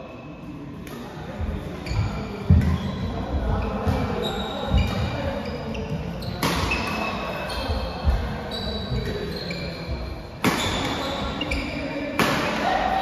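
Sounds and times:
shoes squeaking on court: 1.7s - 12.1s
racket hitting shuttlecock: 6.3s - 7.3s, 10.4s - 11.1s, 12.1s - 12.8s.

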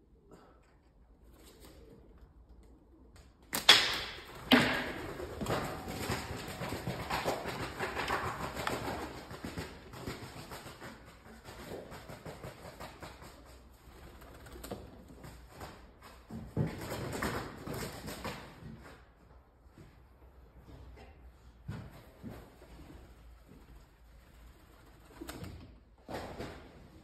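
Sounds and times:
pigeon wings flapping: 1.3s - 18.7s, 22.2s - 27.0s.

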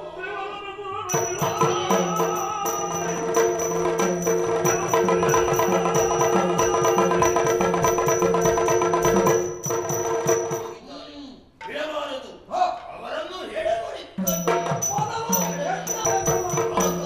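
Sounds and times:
fast driving drum strokes: 1.1s - 10.8s, 14.2s - 17.0s.

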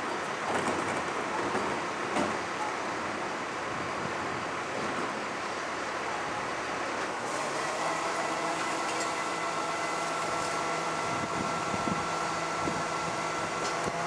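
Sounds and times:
garbage truck running: 4.4s - 14.0s
hydraulic whine: 7.0s - 14.0s.

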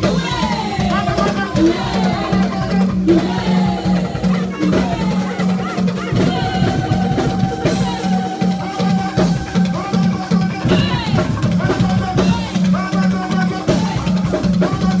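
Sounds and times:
live band music: 0.0s - 15.0s
man singing into microphone: 3.9s - 15.0s.

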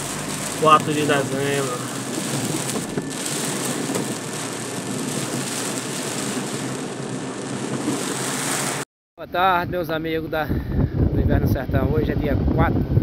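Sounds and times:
heavy rain on car roof: 0.0s - 8.8s.

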